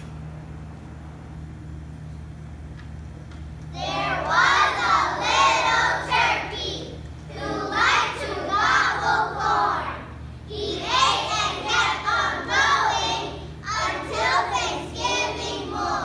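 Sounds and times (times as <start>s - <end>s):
steady low hum: 0.0s - 16.0s
children singing together: 3.8s - 16.0s.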